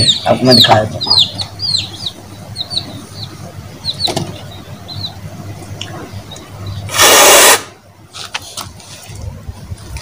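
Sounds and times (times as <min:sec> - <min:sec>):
falling bird chirps: 0:00.0 - 0:05.2
low steady hum: 0:00.0 - 0:10.0.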